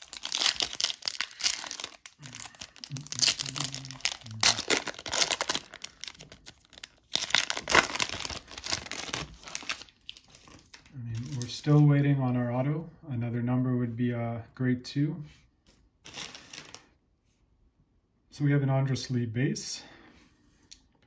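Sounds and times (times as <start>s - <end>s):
foil wrapper tearing and crinkling: 0.0s - 11.5s, 16.0s - 16.8s.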